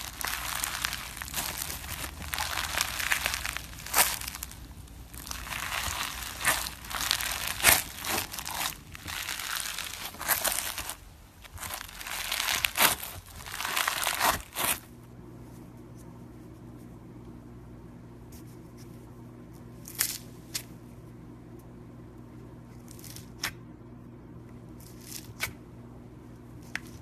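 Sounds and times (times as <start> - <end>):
slime crackling as hands knead it: 0.0 - 14.9
faint steady hum: 0.0 - 27.0.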